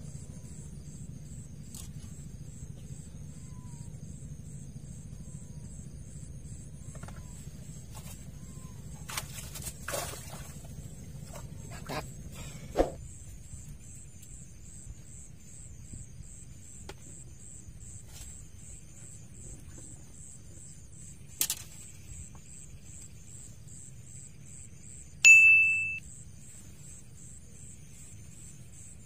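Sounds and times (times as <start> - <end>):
night insects chirping: 0.0 - 29.0
sharp high ding: 25.2 - 26.0.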